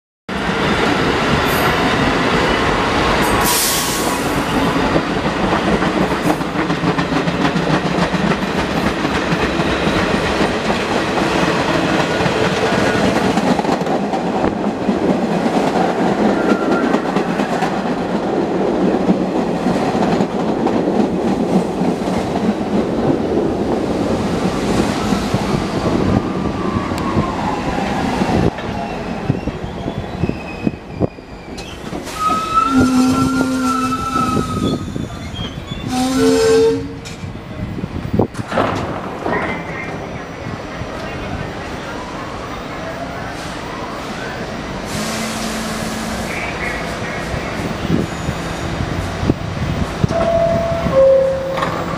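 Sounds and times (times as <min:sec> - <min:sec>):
subway train rumbling: 0:00.3 - 0:51.9
brake squeal: 0:29.3 - 0:35.9.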